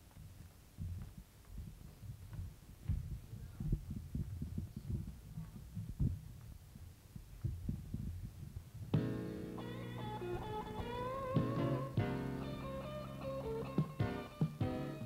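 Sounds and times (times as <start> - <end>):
music with sustained chords: 9.0 - 15.0
scattered thumps: 10.0 - 12.3.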